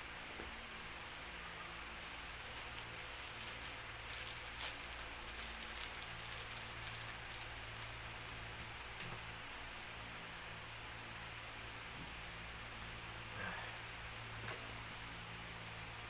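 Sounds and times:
steady background hiss: 0.0 - 16.0
packaging crinkling and rustling: 2.1 - 8.4.

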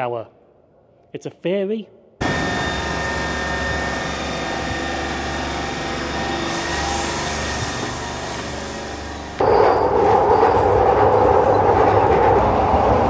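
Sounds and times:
train mechanical hum: 2.2 - 13.0
whining tones: 2.2 - 13.0.

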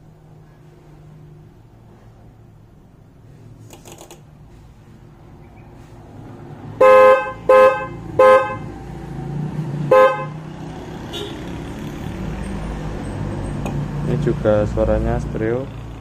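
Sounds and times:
motorcycle horns honking: 6.8 - 8.7, 9.9 - 10.5, 11.1 - 11.5.

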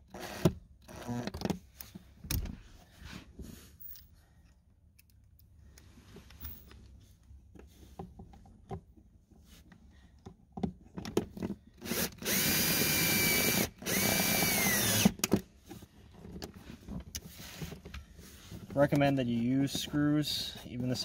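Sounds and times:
driver motor whining: 0.0 - 1.4, 11.8 - 15.3.

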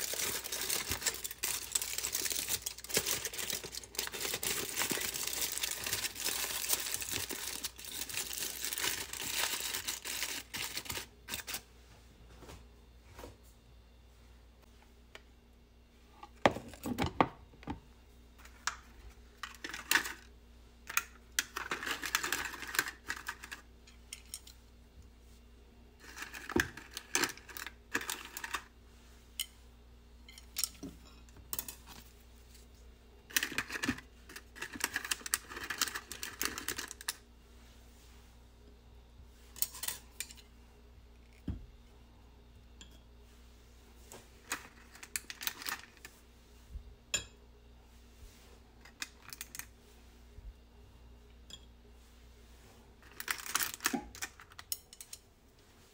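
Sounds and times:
paper liners crinkling: 0.0 - 11.6.

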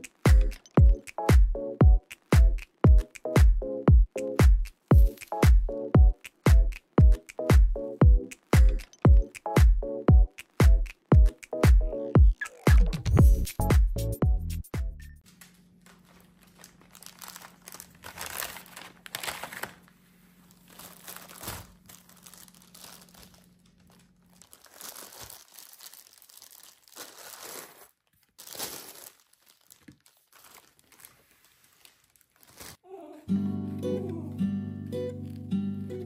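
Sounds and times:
plastic bags crinkling: 15.3 - 32.8.

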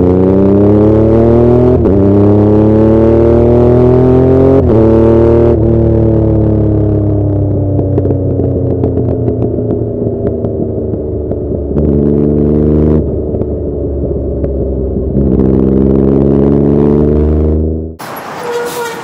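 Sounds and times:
motorcycle engine revving: 0.0 - 19.0
exhaust popping and crackling: 7.2 - 16.0.

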